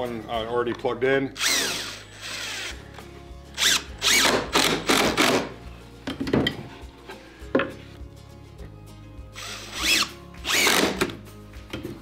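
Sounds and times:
impact driver driving screws: 0:01.4 - 0:02.8, 0:03.6 - 0:05.5, 0:09.4 - 0:11.2.

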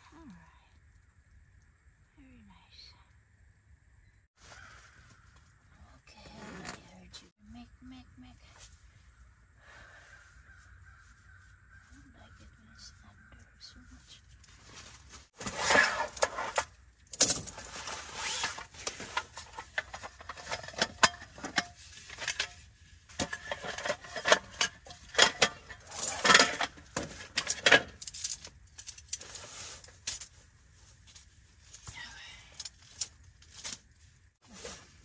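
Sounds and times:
rustling and swishing: 0:13.8 - 0:16.8, 0:17.4 - 0:27.4, 0:28.3 - 0:32.0, 0:32.6 - 0:35.0.

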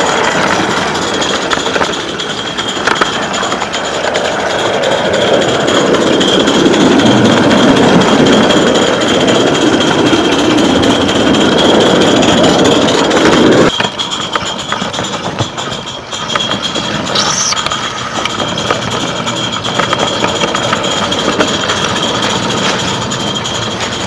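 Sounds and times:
model steam train running: 0:00.0 - 0:24.0
wheels clicking over track: 0:00.0 - 0:24.0.

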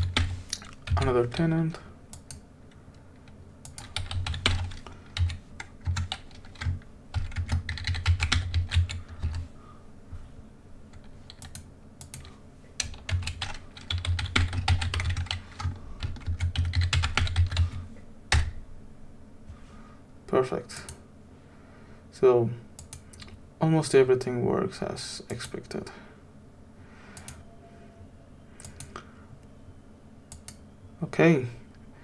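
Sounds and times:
computer keyboard typing: 0:00.0 - 0:01.5, 0:03.2 - 0:09.4, 0:10.9 - 0:18.5, 0:27.2 - 0:27.4, 0:28.6 - 0:29.0.

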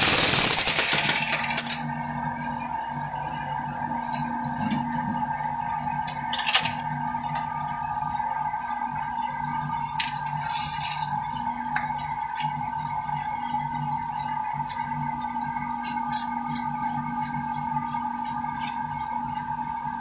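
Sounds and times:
pulsing machine drone: 0:00.0 - 0:01.8.

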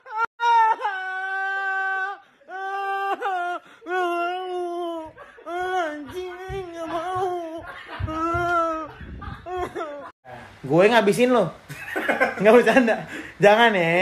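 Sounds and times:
man wailing: 0:00.0 - 0:10.1
low thumps and handling noise: 0:05.0 - 0:09.8.

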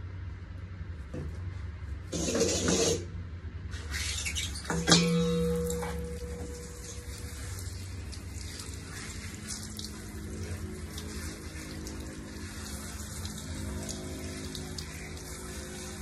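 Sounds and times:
water splashing on tiled floor: 0:03.8 - 0:16.0
low steady tone: 0:04.7 - 0:08.2
shower water spraying on fur: 0:05.0 - 0:16.0.

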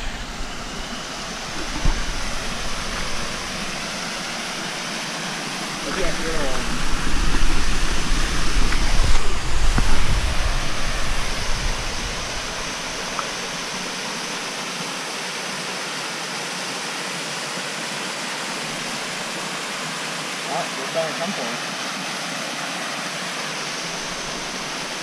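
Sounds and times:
low rumble: 0:00.0 - 0:13.9
waterfall splashing: 0:00.0 - 0:25.0.

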